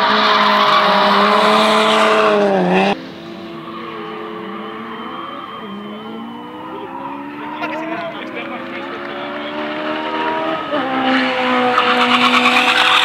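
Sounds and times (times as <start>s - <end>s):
race car engine at high revs: 0.0s - 13.0s
tyres screeching: 11.7s - 13.0s.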